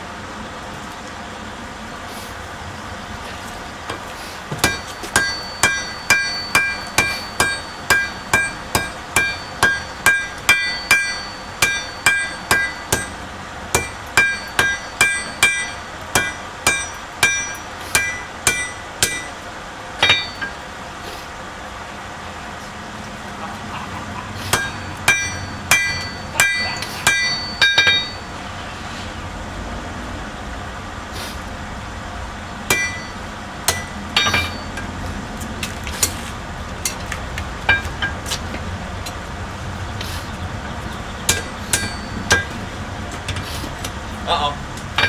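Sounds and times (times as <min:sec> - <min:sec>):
hammer striking metal on anvil: 0:04.6 - 0:19.4, 0:20.0 - 0:20.6, 0:24.5 - 0:28.3, 0:32.7 - 0:34.9, 0:37.7 - 0:38.2, 0:41.3 - 0:42.6.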